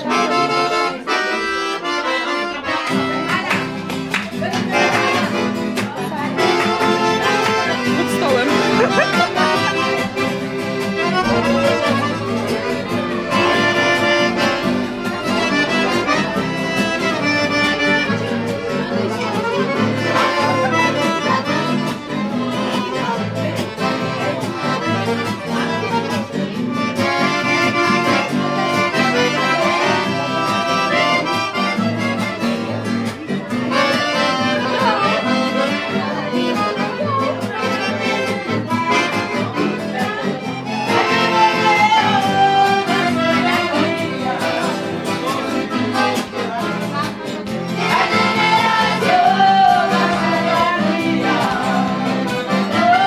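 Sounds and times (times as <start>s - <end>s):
accordion playing chords: 0.0s - 53.0s
rhythmic bass: 7.0s - 19.5s.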